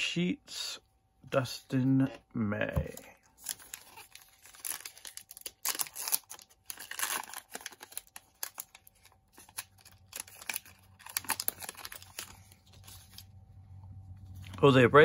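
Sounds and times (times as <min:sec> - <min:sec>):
wrapper tearing and crinkling: 0:03.3 - 0:13.3.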